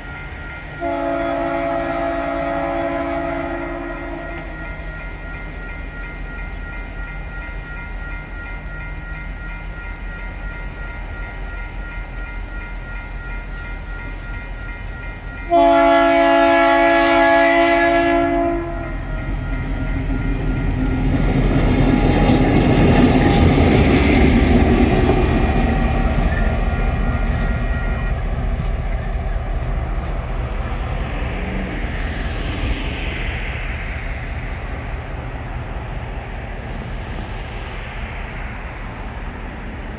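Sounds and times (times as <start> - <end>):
level crossing warning bell: 0.0 - 2.8, 3.4 - 33.5
diesel locomotive engine: 0.0 - 39.9
train wheels clickety-clack: 0.0 - 39.9
locomotive horn: 0.8 - 4.6, 15.4 - 19.1.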